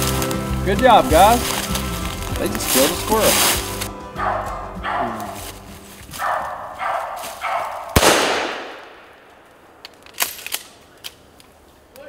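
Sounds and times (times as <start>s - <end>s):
gunshot with echo: 7.9s - 9.3s.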